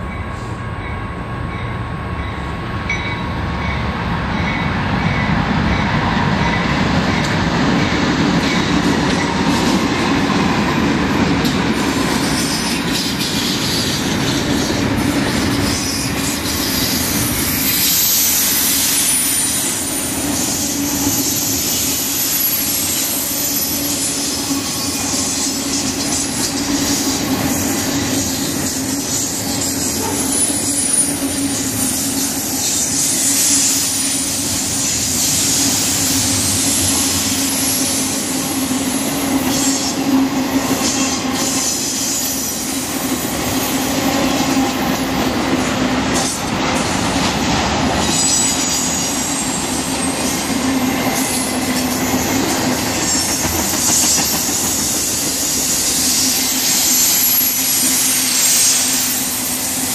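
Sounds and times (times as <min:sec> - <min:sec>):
freight train wheels rumbling: 0:00.0 - 0:59.9
train cars clanking: 0:00.0 - 0:59.9.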